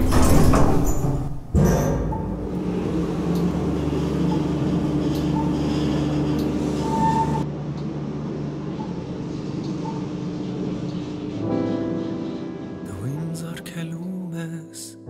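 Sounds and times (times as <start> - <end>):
belt-driven machinery humming: 2.1 - 13.2.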